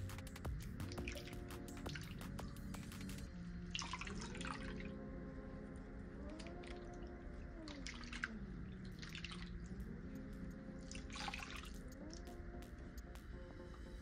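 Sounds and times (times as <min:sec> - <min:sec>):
splashing and dripping soapy water: 0:07.6 - 0:09.8.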